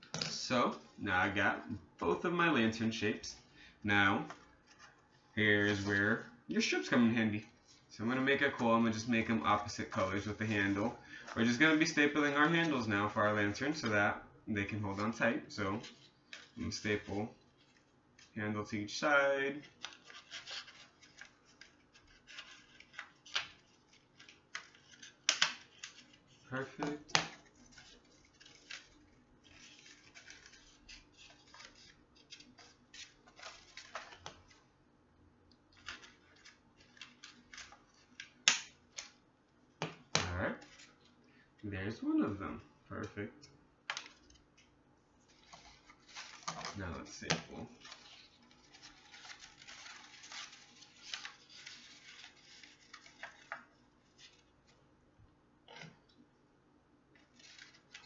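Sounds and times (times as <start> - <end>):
paper rustling and crinkling: 4.2 - 13.9, 19.4 - 34.7, 35.7 - 39.2, 43.9 - 54.8, 57.2 - 58.0
paper snap: 24.2 - 26.0, 35.9 - 39.2.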